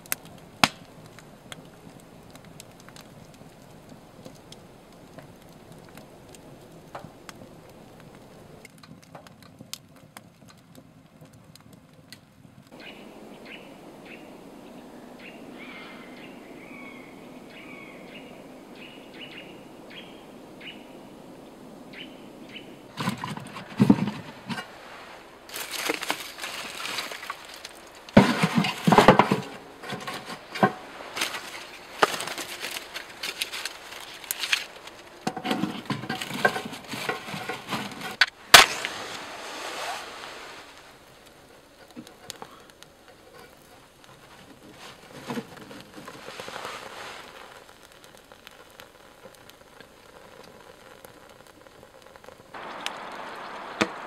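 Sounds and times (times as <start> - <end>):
firewood knocking and clattering: 0.0 - 12.2, 22.9 - 24.8, 25.5 - 39.0, 41.8 - 46.7
faint bird chirps: 12.8 - 21.0.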